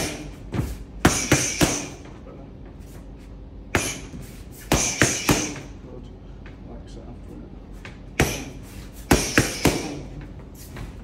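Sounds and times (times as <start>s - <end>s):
punches on focus mitts: 0.0s - 2.0s, 3.8s - 5.7s, 8.1s - 10.0s.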